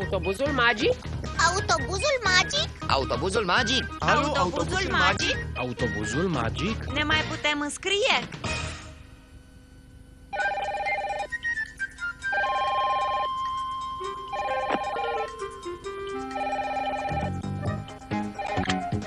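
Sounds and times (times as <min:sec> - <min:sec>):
light background music: 0:00.0 - 0:09.2, 0:10.4 - 0:19.0
desk telephone ringing: 0:10.4 - 0:11.4, 0:12.3 - 0:17.6.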